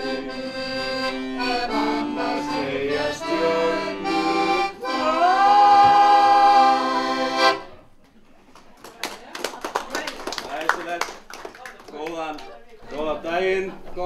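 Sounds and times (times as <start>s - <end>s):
piano accordion playing: 0.0s - 7.8s
man and women singing: 1.4s - 7.1s.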